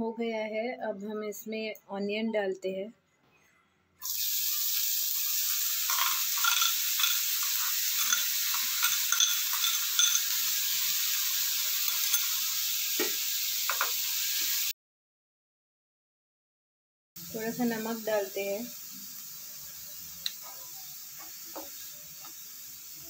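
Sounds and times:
onions sizzling in frying pan: 4.0s - 14.7s, 17.2s - 23.0s.

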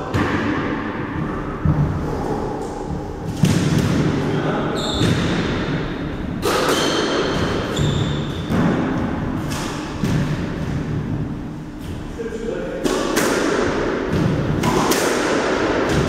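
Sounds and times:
squash ball thuds: 3.3s - 11.5s, 12.8s - 16.0s
shoe squeaks: 4.7s - 5.1s, 6.7s - 8.5s.

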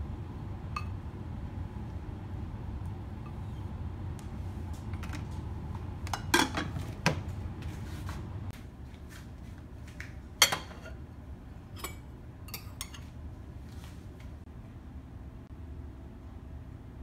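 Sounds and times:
low steady hum: 0.0s - 17.0s
dishes clinking: 0.7s - 1.0s, 6.1s - 6.8s, 10.4s - 11.0s, 11.7s - 13.1s.

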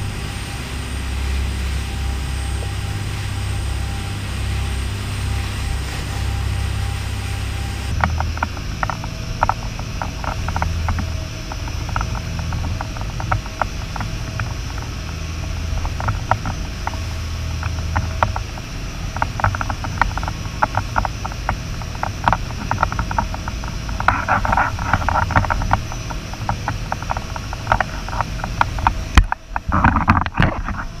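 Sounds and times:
boat engines droning: 0.0s - 31.0s.

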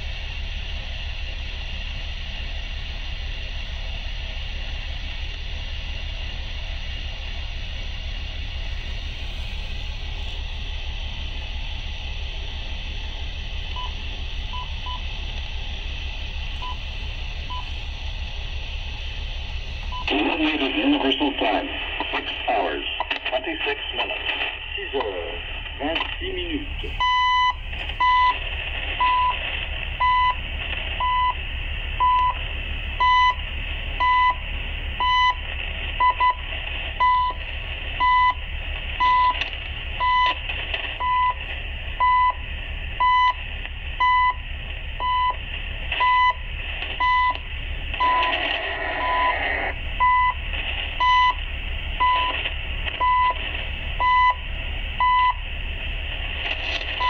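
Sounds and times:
radio static: 2.4s - 57.0s
short radio beeps: 24.8s - 28.4s, 29.0s - 29.4s, 32.0s - 32.4s, 41.0s - 41.4s, 46.0s - 46.4s, 48.0s - 49.4s, 50.0s - 51.4s, 52.0s - 53.4s, 54.0s - 55.4s.

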